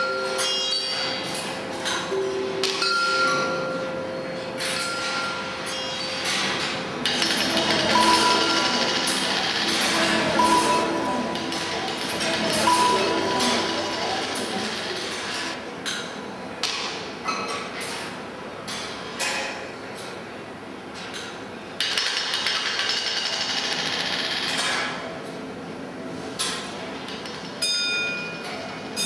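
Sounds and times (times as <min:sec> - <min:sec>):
balls clacking in machine: 0:04.6 - 0:15.6, 0:21.8 - 0:25.0
ringing chime: 0:07.6 - 0:11.3, 0:12.6 - 0:14.4.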